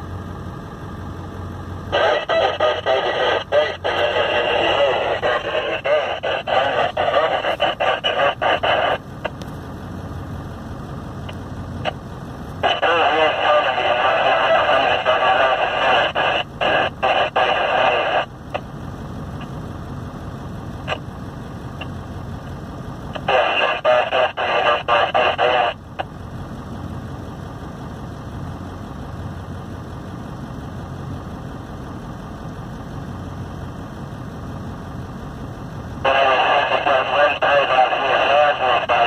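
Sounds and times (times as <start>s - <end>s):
truck engine idling: 0.0s - 39.0s
two-way radio chatter: 1.8s - 28.4s, 35.1s - 39.0s.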